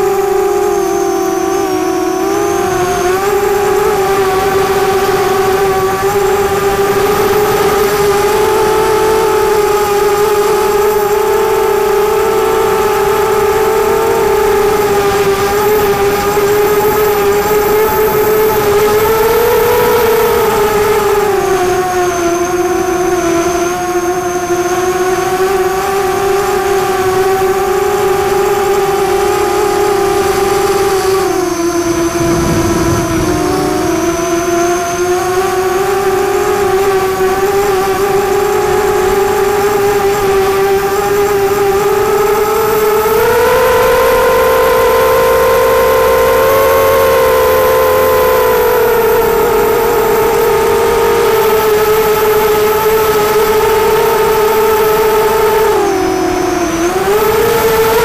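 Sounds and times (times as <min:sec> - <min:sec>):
drone propellers whining: 0:00.0 - 0:58.0
brief low rumble: 0:31.9 - 0:34.8.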